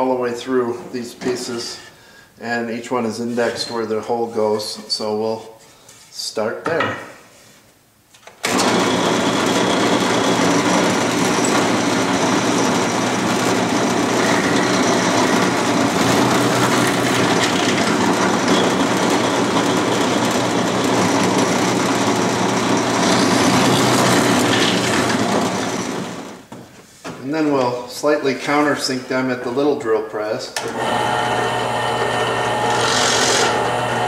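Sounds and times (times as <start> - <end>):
bit drilling through wood: 8.5 - 26.3, 30.6 - 34.0
drill press motor running: 8.5 - 26.4, 30.6 - 34.0.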